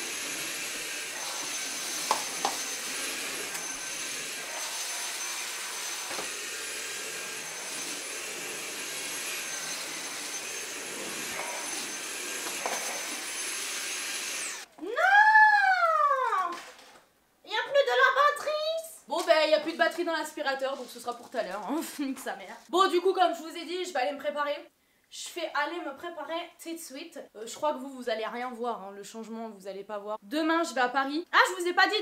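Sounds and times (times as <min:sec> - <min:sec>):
vacuum cleaner motor whine: 0:00.0 - 0:14.7.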